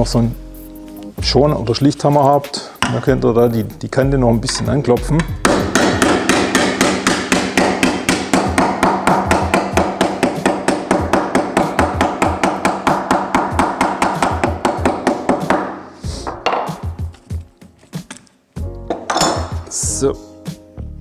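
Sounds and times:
mallet tapping sheet metal: 4.4s - 16.9s.

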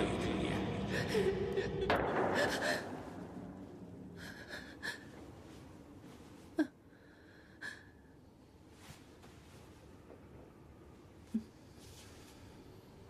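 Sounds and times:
woman gasping and breathing heavily: 0.9s - 3.4s, 4.1s - 5.6s, 6.5s - 8.2s.

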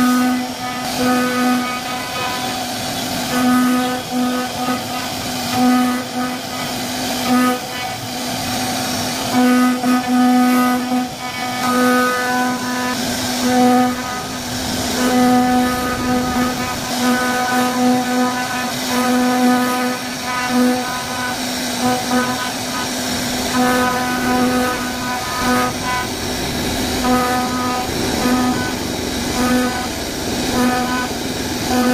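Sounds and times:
machine pitched whine: 0.0s - 31.9s
rough wood cutting noise: 0.0s - 31.9s.

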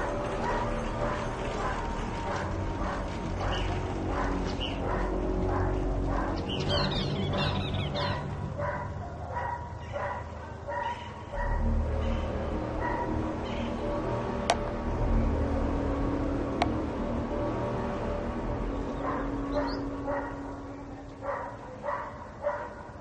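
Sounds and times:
steady low drone: 0.0s - 23.0s
dog barking: 2.4s - 6.4s, 8.0s - 11.6s, 12.8s - 13.2s, 19.0s - 20.6s, 21.2s - 23.0s.

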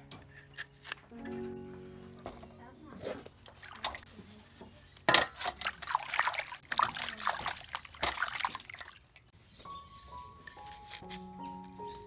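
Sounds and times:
water splashing in metal basin: 3.4s - 4.1s, 5.0s - 9.3s.

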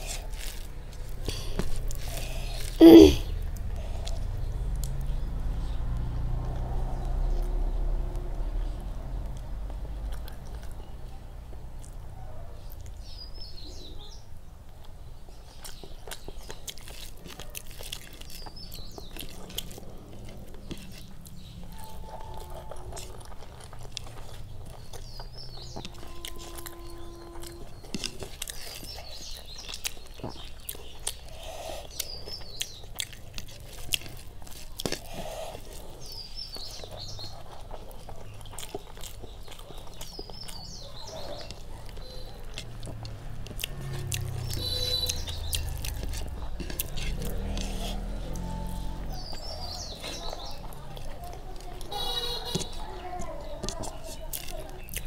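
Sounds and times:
fingers squishing rice: 0.0s - 3.2s, 15.6s - 55.0s
mouth chewing with wet smacks: 0.0s - 55.0s
bird chirping: 17.9s - 33.0s, 35.2s - 51.3s.

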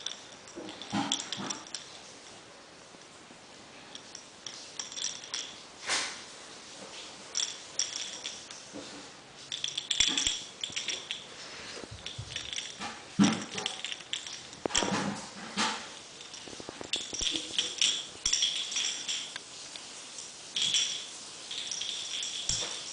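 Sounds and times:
toy ball jingling and rattling: 0.0s - 2.1s, 3.9s - 5.6s, 7.3s - 8.7s, 9.5s - 15.0s, 15.9s - 19.4s, 20.3s - 22.9s.

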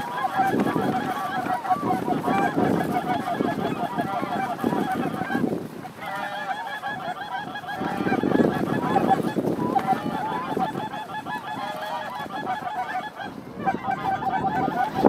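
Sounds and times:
geese honking: 0.0s - 15.0s
wind rumble on microphone: 0.0s - 15.0s.

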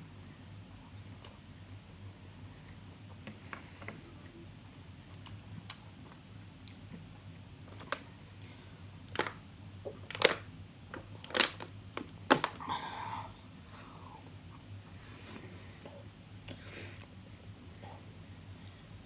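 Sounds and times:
plastic water bottle crackling: 9.1s - 9.4s, 10.1s - 10.4s, 11.2s - 12.6s.

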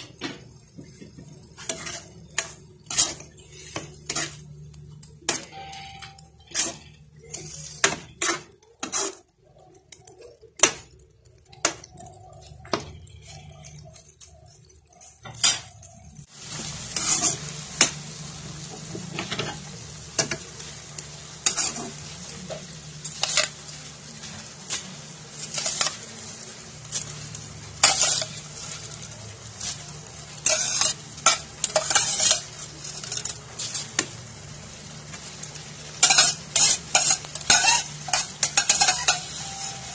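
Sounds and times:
food sizzling in a pan: 0.0s - 39.9s
metal ladle scraping a wok: 1.5s - 4.5s, 5.3s - 9.3s, 16.9s - 17.9s, 21.3s - 22.2s, 23.0s - 34.1s, 35.9s - 39.9s.

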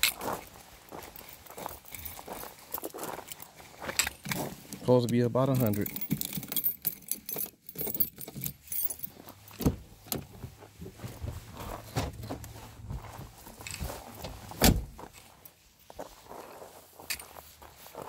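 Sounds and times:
handling jangling and clicks: 0.0s - 10.6s, 11.6s - 15.6s, 17.0s - 17.6s
heavier thump: 14.2s - 15.0s.

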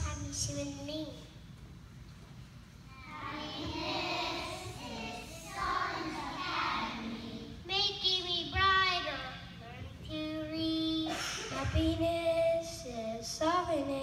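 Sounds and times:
young children singing: 2.9s - 9.1s.

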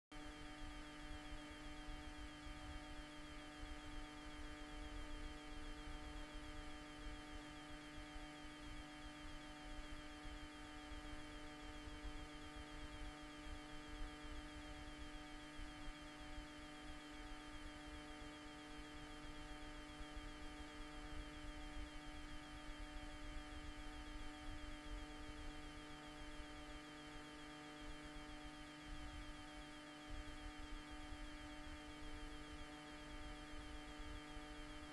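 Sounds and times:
steady electrical hum: 0.2s - 34.9s.

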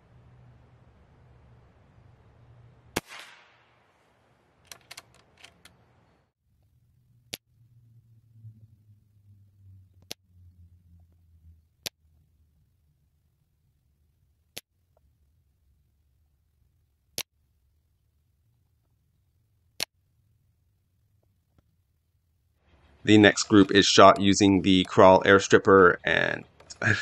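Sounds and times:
air rifle shots: 3.0s - 4.0s.

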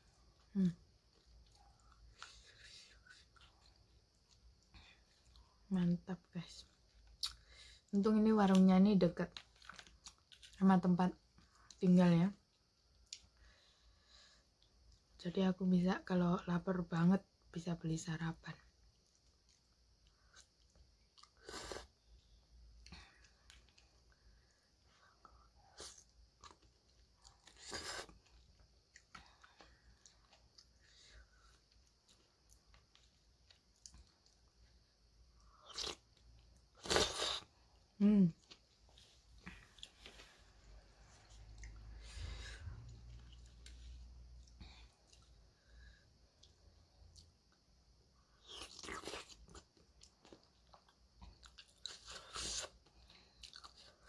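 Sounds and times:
quiet chewing: 0.1s - 5.7s, 6.6s - 7.6s, 9.3s - 10.6s, 18.6s - 47.6s, 48.3s - 54.0s.

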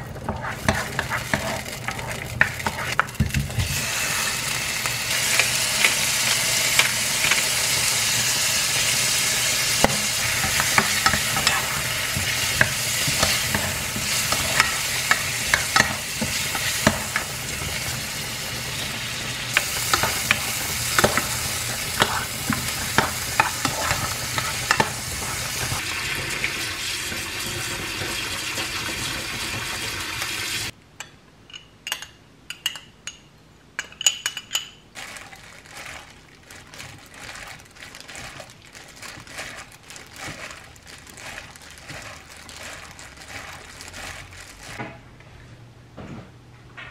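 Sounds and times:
wooden spatula scraping: 0.0s - 4.4s, 9.7s - 17.7s, 19.5s - 25.8s, 35.0s - 44.8s
food sizzling in frying pan: 0.0s - 30.8s.

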